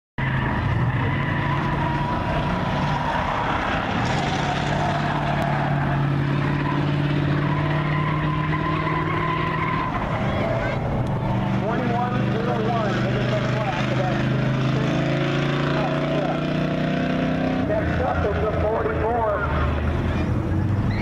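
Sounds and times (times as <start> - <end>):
tires squealing: 0.2 - 21.0
truck engine running hard: 0.2 - 21.0.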